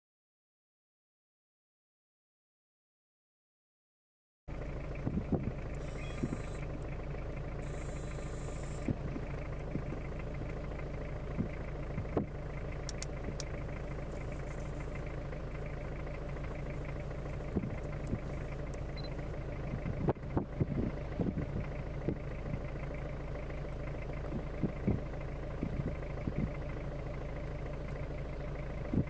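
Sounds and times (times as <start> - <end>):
vehicle engine idling: 4.5 - 29.0
faint clicks: 12.8 - 14.8.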